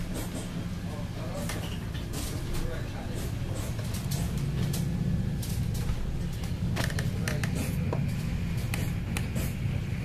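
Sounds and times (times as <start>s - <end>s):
boat engine drone: 3.4s - 10.0s.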